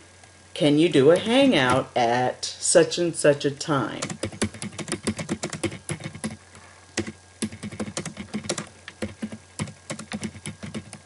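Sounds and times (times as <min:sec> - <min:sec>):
computer keyboard keys clicking: 0:04.0 - 0:06.4, 0:07.0 - 0:11.0.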